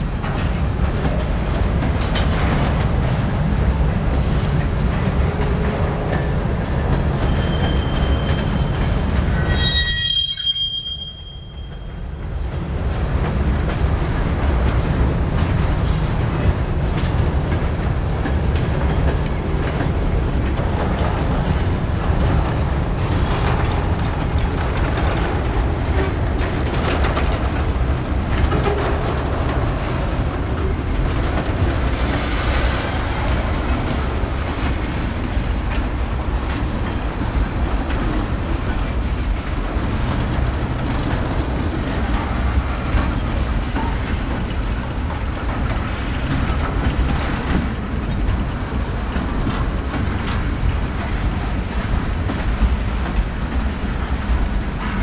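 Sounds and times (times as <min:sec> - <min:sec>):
train wheels rumbling on rail: 0:00.0 - 0:55.0
wheels clicking over track: 0:12.5 - 0:55.0.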